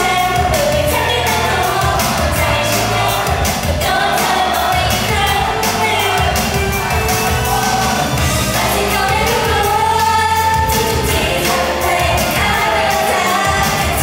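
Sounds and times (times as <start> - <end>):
female vocals over pop beat: 0.0 - 7.6, 8.3 - 14.0.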